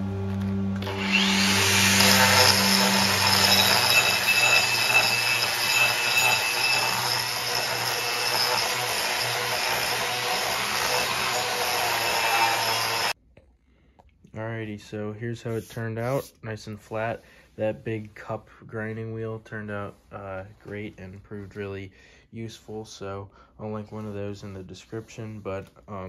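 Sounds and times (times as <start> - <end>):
background music: 0.0 - 4.3
angle grinder grinding metal: 0.3 - 13.2.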